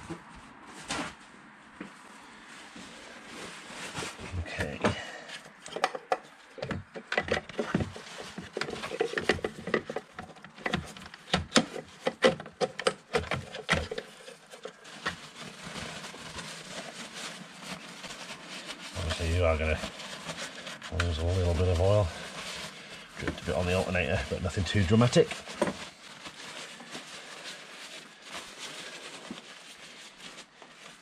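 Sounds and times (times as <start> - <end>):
paper towels rustling: 0.0 - 31.0.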